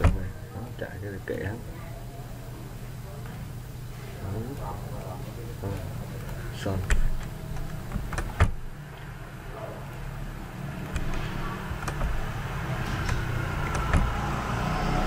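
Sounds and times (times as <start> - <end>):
computer mouse clicks: 10.8 - 14.3.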